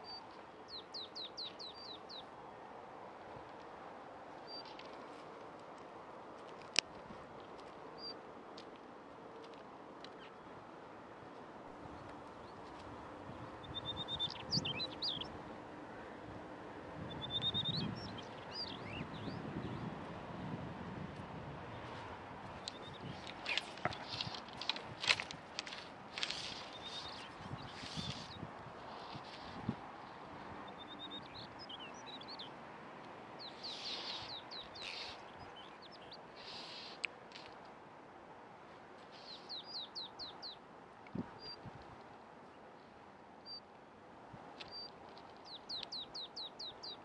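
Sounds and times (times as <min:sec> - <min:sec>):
songbird singing: 0:00.0 - 0:02.7, 0:04.3 - 0:05.2, 0:07.4 - 0:08.5, 0:09.2 - 0:10.6, 0:11.7 - 0:20.6, 0:21.6 - 0:37.6, 0:39.0 - 0:41.7, 0:42.4 - 0:43.8, 0:44.6 - 0:47.0.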